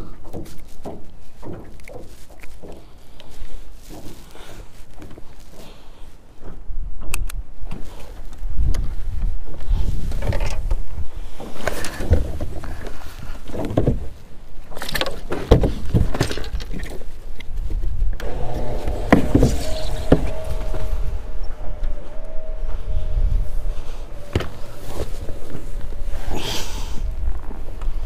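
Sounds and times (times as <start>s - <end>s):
wind rumbling on microphone: 0.0s - 28.0s
steady whine: 18.2s - 28.0s.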